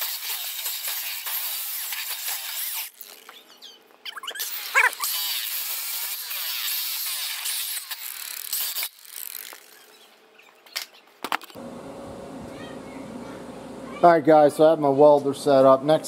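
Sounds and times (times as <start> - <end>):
angle grinder grinding steel: 4.4 - 10.1.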